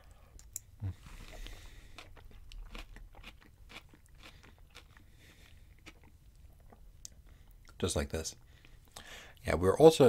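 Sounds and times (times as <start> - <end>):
mouth chewing food: 0.6 - 7.8.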